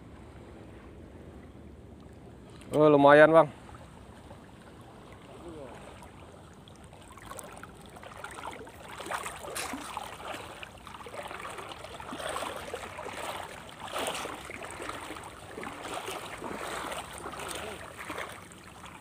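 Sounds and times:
water lapping against a boat: 0:00.0 - 0:19.0.

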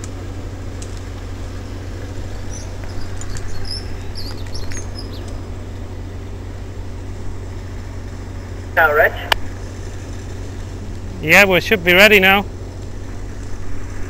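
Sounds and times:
crane engine droning: 0:00.0 - 0:14.0
bird chirping: 0:02.4 - 0:05.4.

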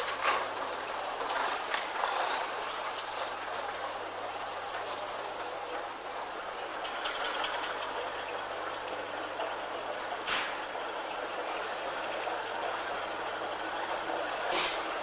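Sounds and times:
steam road roller engine hissing: 0:10.2 - 0:10.6, 0:13.9 - 0:15.0
sharp steam hisses: 0:14.5 - 0:14.9.

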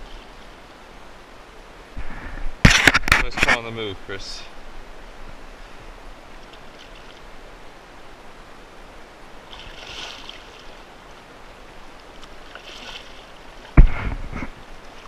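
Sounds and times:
wind: 0:00.0 - 0:15.0
fish splashing at surface: 0:09.5 - 0:10.7, 0:12.5 - 0:13.4.

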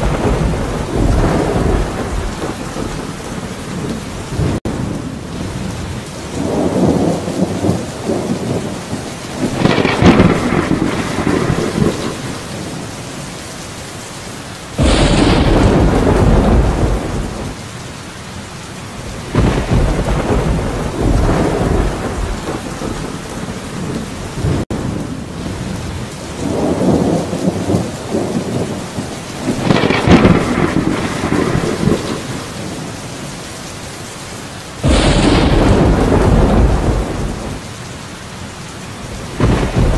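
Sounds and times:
thunder rumbling: 0:00.0 - 0:13.2, 0:14.7 - 0:17.6, 0:19.0 - 0:33.4, 0:34.5 - 0:37.8, 0:38.9 - 0:39.9
steady rain: 0:00.0 - 0:39.9.

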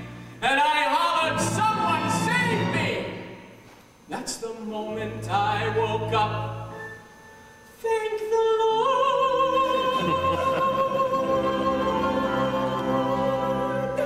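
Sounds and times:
man singing operatically: 0:00.4 - 0:03.2, 0:04.2 - 0:06.8, 0:07.8 - 0:11.6
orchestral accompaniment: 0:01.0 - 0:03.6, 0:09.6 - 0:14.0.

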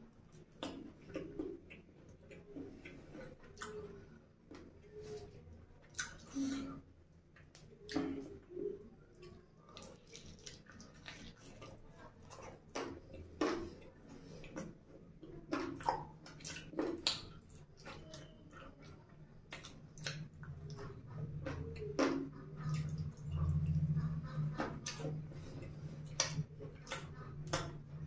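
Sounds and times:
wet mouth sounds: 0:15.5 - 0:28.0
chewing and biting chicken: 0:19.5 - 0:28.0.

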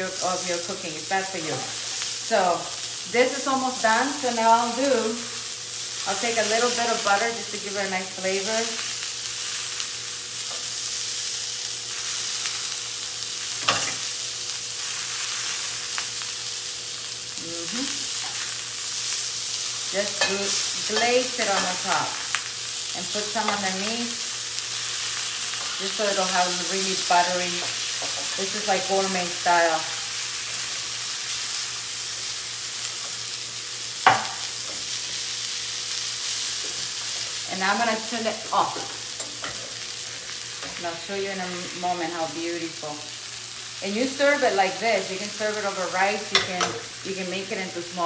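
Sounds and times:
fish sizzling in a pan: 0:00.0 - 0:48.0.

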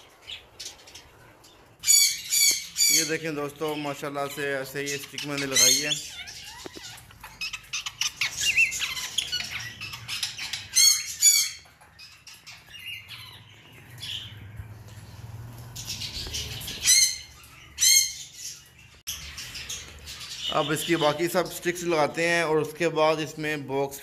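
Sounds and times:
parrots chirping: 0:00.0 - 0:22.5
parrots squawking loudly: 0:01.8 - 0:03.1, 0:04.3 - 0:14.3, 0:15.9 - 0:21.0.

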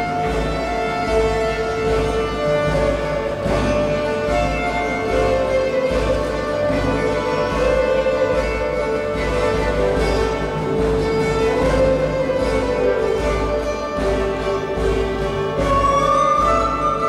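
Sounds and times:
bowed fiddles playing melody: 0:00.0 - 0:17.0
plucked strings: 0:00.0 - 0:17.0.

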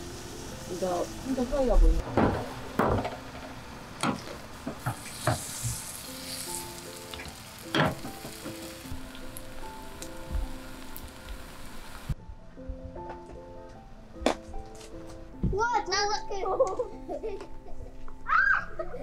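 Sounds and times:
batter sizzling in oil: 0:00.0 - 0:12.2.

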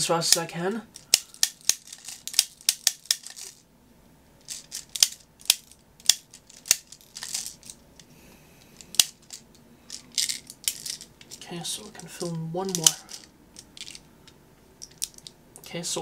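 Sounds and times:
soft handling rustle: 0:06.3 - 0:15.3.

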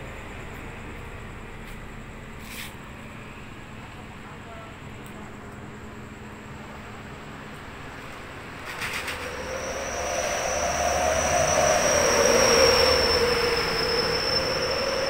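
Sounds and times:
train wheels squealing on rail: 0:02.4 - 0:04.8, 0:07.8 - 0:15.0
low wavering tone: 0:09.2 - 0:15.0.

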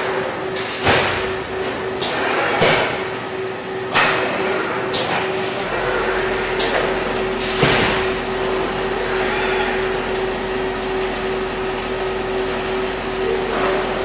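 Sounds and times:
machine hum: 0:00.0 - 0:14.0.

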